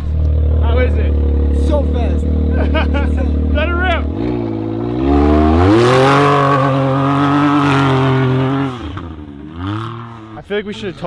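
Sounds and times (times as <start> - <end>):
engine revving at full throttle: 0.0 - 10.4.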